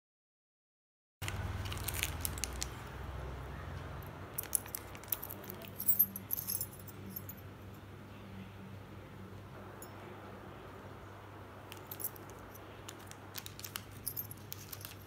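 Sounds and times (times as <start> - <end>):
plastic bag crinkling: 1.2 - 3.0, 12.9 - 15.0.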